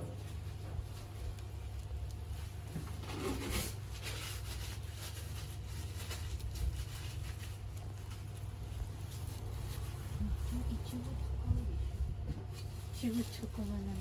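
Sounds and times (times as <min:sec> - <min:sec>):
low background hum: 0:00.0 - 0:14.0
gloved hands rustling and tapping: 0:00.2 - 0:03.0.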